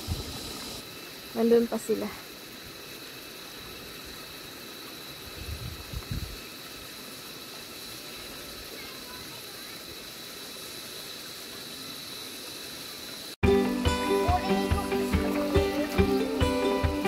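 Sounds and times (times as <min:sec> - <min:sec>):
stream running over stones: 0:00.0 - 0:17.0
music: 0:13.4 - 0:17.0.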